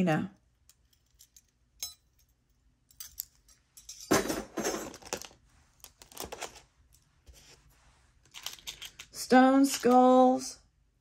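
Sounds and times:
jewelry clinking and jingling: 0:00.5 - 0:05.3, 0:08.2 - 0:10.1.

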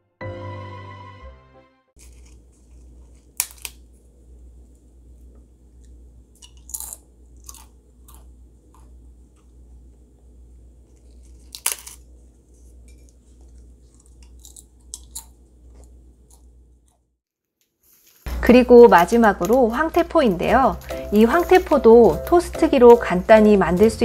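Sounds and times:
dried kelp crackling: 0:02.0 - 0:04.0, 0:17.8 - 0:21.8
steady low hum: 0:02.0 - 0:17.1.

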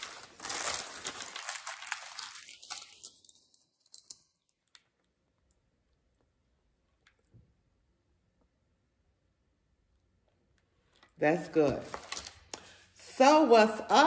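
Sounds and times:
paper packaging crinkling: 0:00.0 - 0:05.0, 0:11.6 - 0:12.9.

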